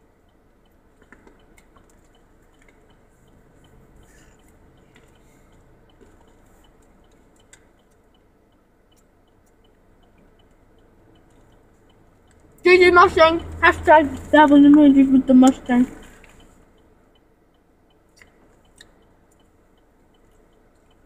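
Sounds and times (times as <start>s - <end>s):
faint regular ticking: 0.0s - 21.0s
car cabin hum: 12.6s - 16.2s
wet mouth clicks: 18.1s - 19.0s.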